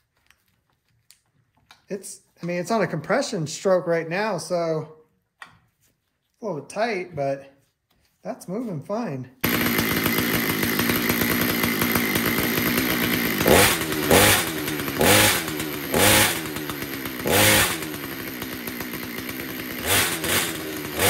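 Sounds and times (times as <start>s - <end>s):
chainsaw engine revving: 9.4s - 21.0s.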